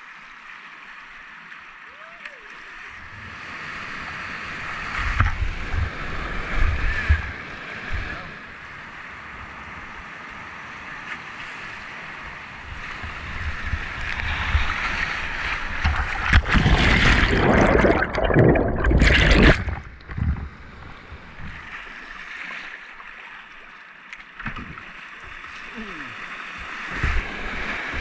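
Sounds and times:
burble of flowing river: 0.0 - 28.0
water crashing over kayak: 13.6 - 21.6.

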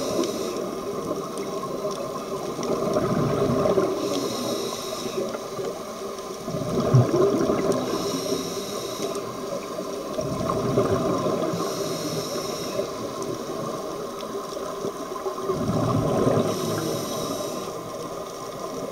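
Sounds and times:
scuba regulator inhale hiss: 0.0 - 0.8, 3.8 - 5.6, 7.8 - 9.7, 11.2 - 13.3, 16.3 - 18.0
exhaust bubbles rumbling underwater: 0.0 - 18.9.

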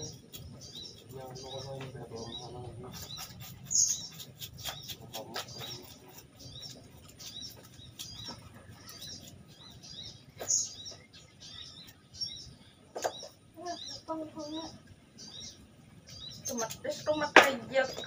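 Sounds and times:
small birds chirping: 0.0 - 18.0
knife chopping on wooden block: 3.0 - 6.2.

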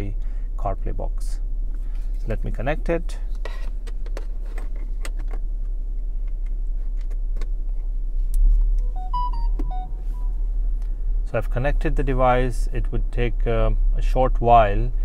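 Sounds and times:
low car cabin hum: 0.0 - 15.0
electronic jingle of beeps: 8.8 - 10.4.

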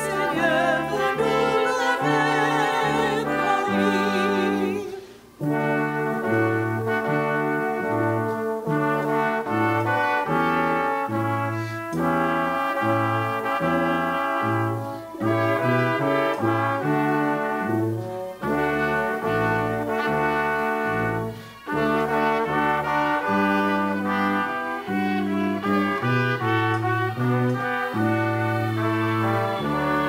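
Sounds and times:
person singing with vibrato: 0.0 - 5.6
brass instruments playing chords: 0.0 - 30.0.

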